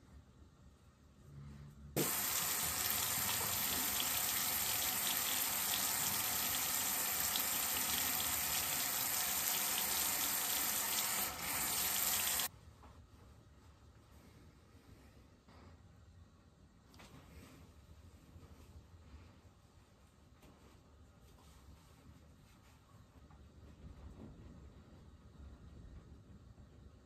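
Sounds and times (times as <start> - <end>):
faucet running: 2.0 - 12.5.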